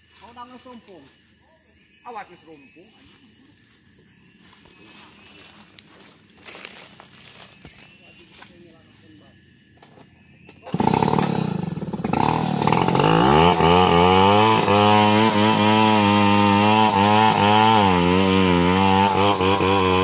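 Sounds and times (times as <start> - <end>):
chainsaw cutting into wood: 10.6 - 20.0.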